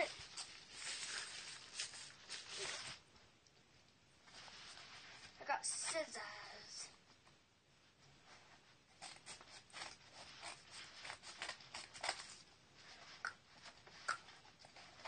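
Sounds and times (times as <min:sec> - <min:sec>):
scissors cutting paper envelope: 0:09.0 - 0:12.4.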